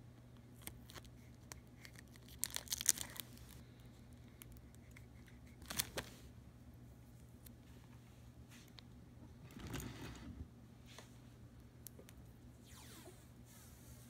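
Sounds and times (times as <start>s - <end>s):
tape and plastic crinkling: 0.6s - 3.6s, 5.6s - 6.2s.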